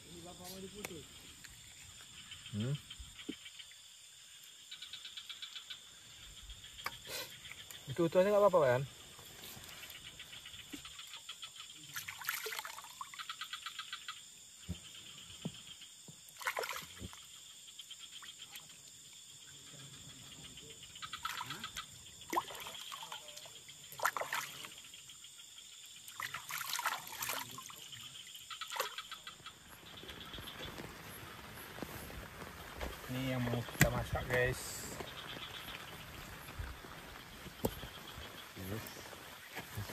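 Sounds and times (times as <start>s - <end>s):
chorus of crickets and insects: 0.0s - 39.9s
frogs calling in pulsed bursts: 0.0s - 39.9s
water trickling: 5.8s - 13.4s, 16.3s - 19.8s, 20.4s - 39.9s.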